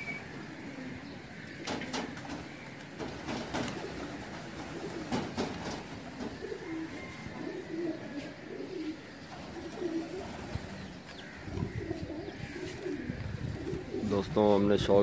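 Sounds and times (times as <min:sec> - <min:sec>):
pigeons cooing: 0:00.0 - 0:14.9.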